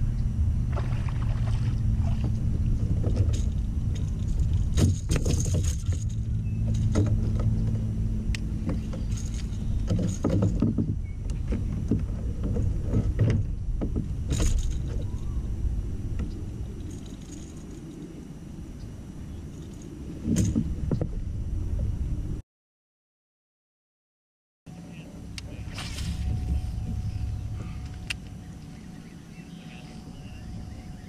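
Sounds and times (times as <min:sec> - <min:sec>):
wind rumble on microphone: 0:00.0 - 0:22.4, 0:25.2 - 0:31.0
water lapping at kayak hull: 0:00.7 - 0:03.4
fishing gear knocking and rattling: 0:02.9 - 0:07.8, 0:08.6 - 0:15.2.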